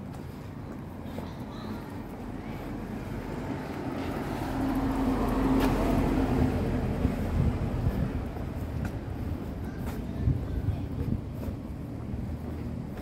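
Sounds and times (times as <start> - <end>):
low traffic noise: 0.0 - 13.0
vehicle engine passing: 2.6 - 9.5.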